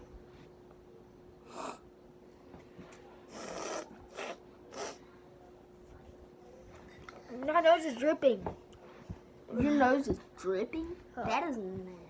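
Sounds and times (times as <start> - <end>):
faint steady hum: 0.0 - 12.0
boy sniffing through runny nose: 3.3 - 5.0.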